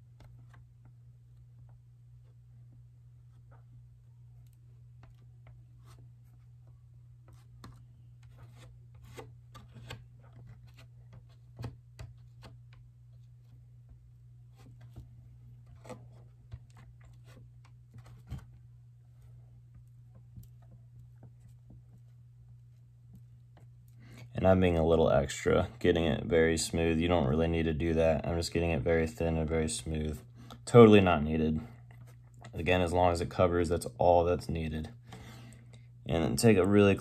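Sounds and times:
steady low hum: 0:00.0 - 0:37.0
fingertip rubbing plastic: 0:04.4 - 0:23.8.

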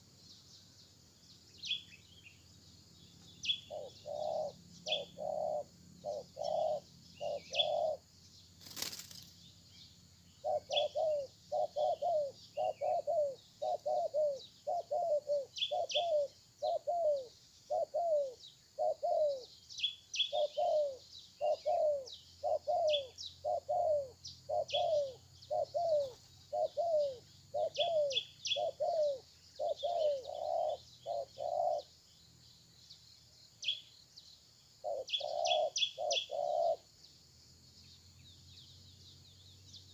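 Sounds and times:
small birds chirping: 0:00.0 - 0:39.9
dove cooing: 0:03.5 - 0:08.1, 0:10.4 - 0:19.5, 0:20.2 - 0:31.9, 0:34.8 - 0:36.9.

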